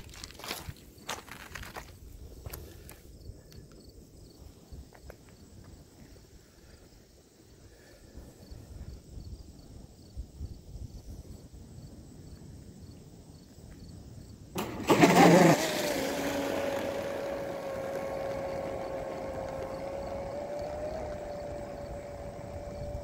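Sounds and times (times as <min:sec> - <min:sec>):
prop spray rush: 0:14.6 - 0:21.8
boat motor whine: 0:14.6 - 0:23.0.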